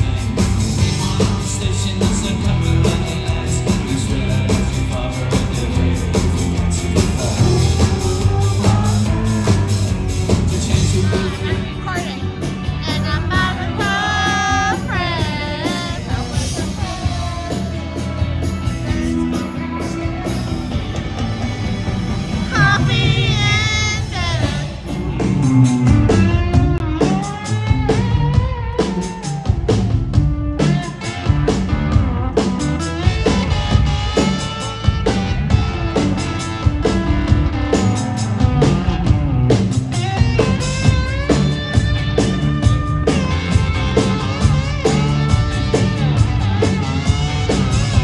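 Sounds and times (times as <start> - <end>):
person singing: 0.0 - 21.0, 22.4 - 25.0
live rock band playing: 0.0 - 48.0.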